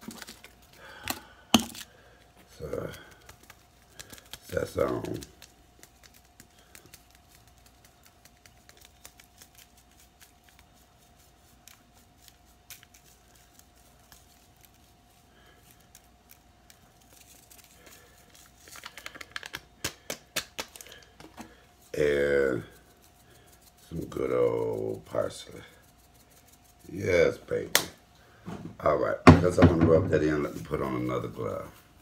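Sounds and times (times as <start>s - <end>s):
faint hum: 0.0s - 32.0s
seasoning shakers rattling: 2.5s - 27.3s.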